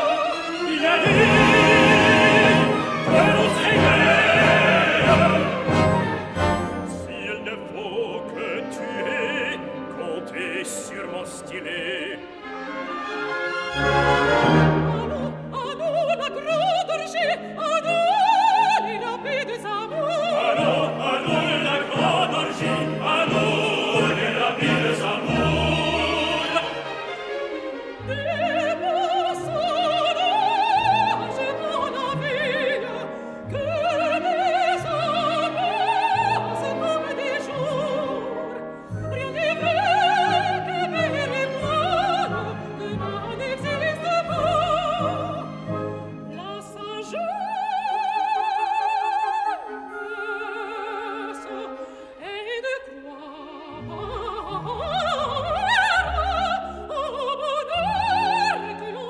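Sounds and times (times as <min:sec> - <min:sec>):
operatic singing with vibrato: 0:00.0 - 0:59.0
orchestra playing sustained chords: 0:00.7 - 0:15.6, 0:20.6 - 0:27.8.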